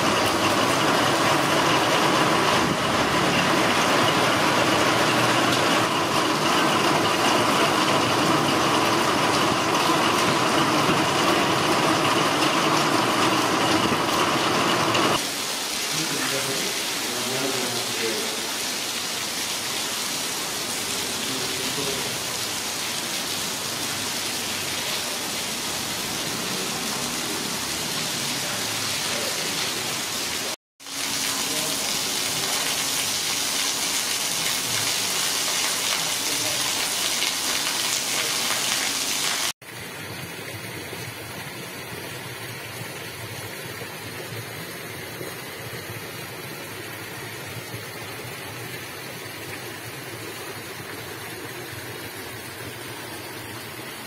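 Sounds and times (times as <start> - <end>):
heavy rain falling: 0.0 - 39.6.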